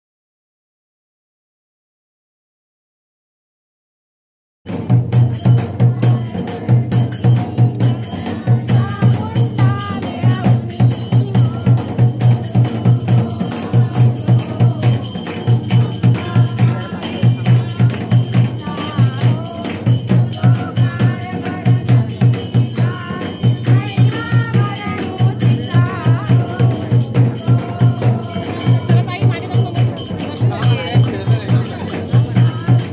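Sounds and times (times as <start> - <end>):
jingling percussion: 4.7 - 32.9
low drum beat: 4.7 - 32.9
person singing: 5.4 - 32.9.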